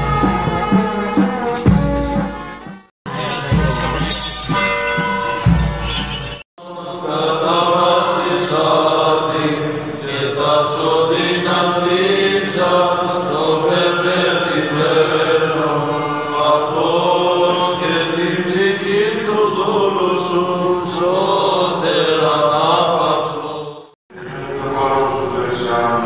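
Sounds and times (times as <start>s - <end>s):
voices chanting a slow hymn: 6.6s - 26.0s.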